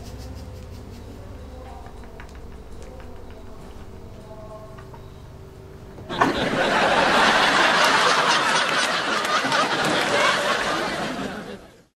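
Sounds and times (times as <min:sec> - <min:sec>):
many people laughing: 0:06.1 - 0:11.9.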